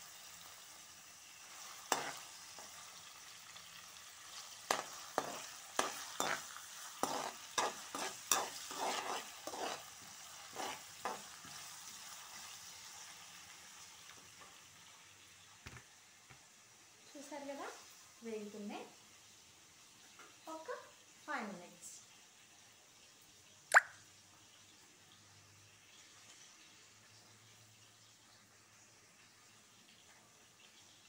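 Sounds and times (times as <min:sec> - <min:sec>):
spices sizzling in hot oil: 0:00.0 - 0:31.0
spatula scraping a pan: 0:01.5 - 0:02.8, 0:04.4 - 0:11.8.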